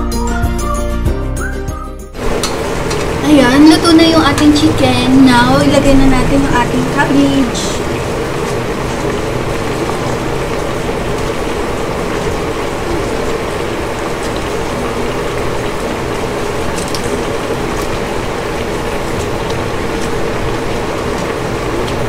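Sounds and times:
sauce bubbling in a pan: 0:03.8 - 0:22.0.

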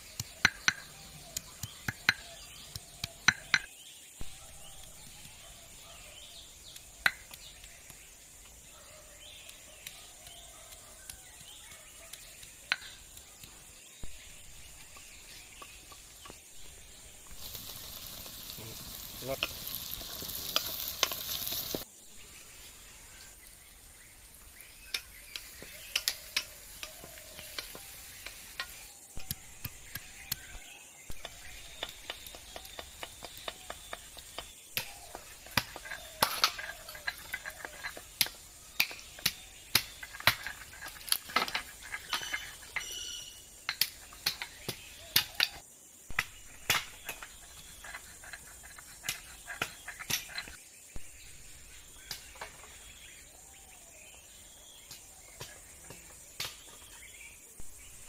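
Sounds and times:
food sizzling in a wok: 0:16.5 - 0:23.2, 0:23.8 - 0:38.8.

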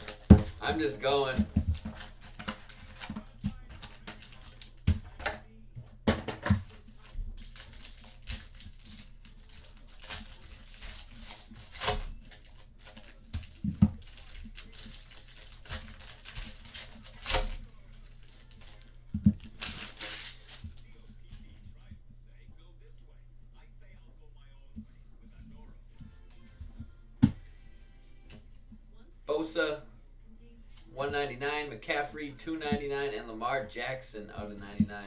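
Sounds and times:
card pack wrappers tearing: 0:00.0 - 0:04.8, 0:06.9 - 0:20.8.

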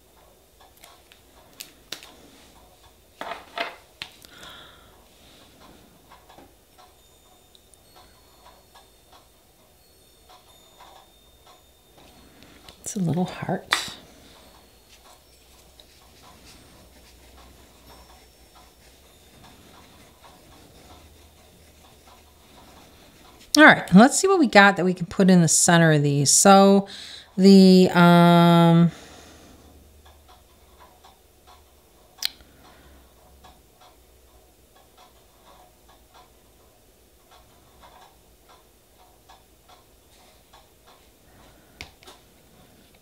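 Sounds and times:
low steady hum: 0:00.0 - 0:43.0
small objects clicking and tapping: 0:03.2 - 0:04.5.

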